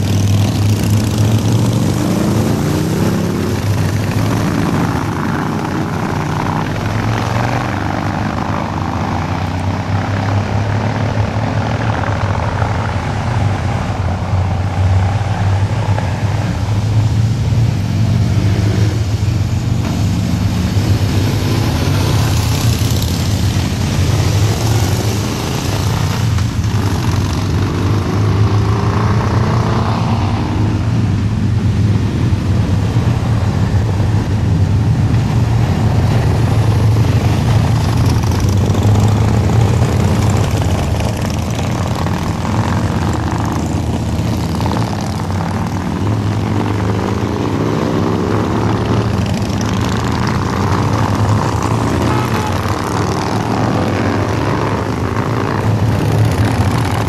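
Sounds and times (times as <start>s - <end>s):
motorcycles riding past: 0.0s - 57.0s.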